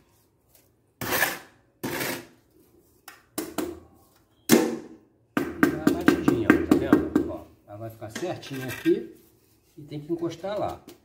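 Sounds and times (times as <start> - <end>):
trowel scraping mortar on stone: 1.0 - 2.4, 8.3 - 9.2
knocks and taps on stone tile: 5.4 - 7.4.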